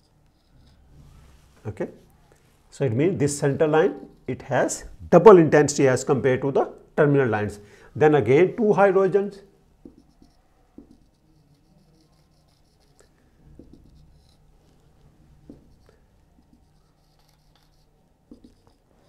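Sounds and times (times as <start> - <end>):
marker scratching on whiteboard: 0.0 - 2.1, 2.9 - 4.8, 9.8 - 19.0
marker tapping whiteboard: 9.8 - 11.2, 13.4 - 14.3, 15.4 - 18.8.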